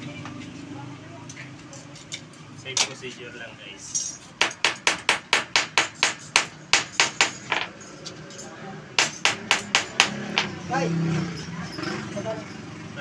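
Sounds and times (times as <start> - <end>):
hammer striking sheet metal: 4.4 - 7.7, 9.0 - 10.6.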